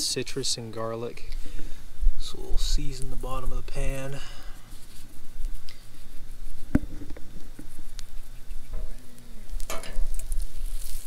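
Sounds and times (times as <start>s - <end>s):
butter sizzling in a frying pan: 9.8s - 11.0s.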